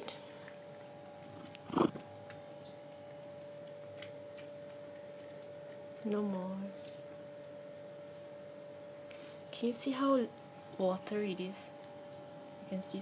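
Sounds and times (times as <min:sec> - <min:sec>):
faint steady hum: 0:00.0 - 0:13.0
cat meowing: 0:01.4 - 0:02.0.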